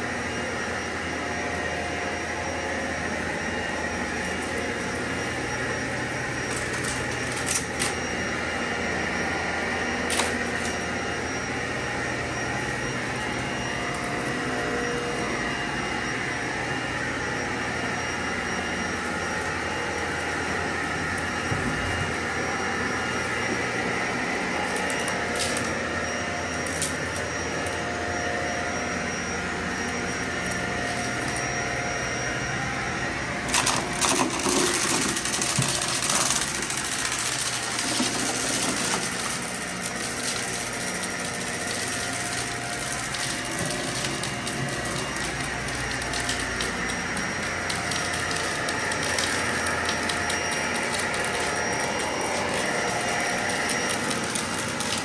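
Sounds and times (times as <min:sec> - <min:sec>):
vacuum cleaner running: 0:00.0 - 0:55.0
debris crackling in vacuum: 0:33.4 - 0:55.0.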